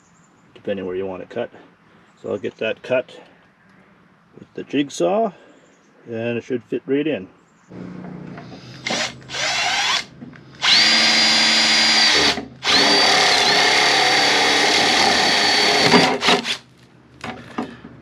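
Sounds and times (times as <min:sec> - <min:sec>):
cordless drill whining: 0:08.5 - 0:16.6.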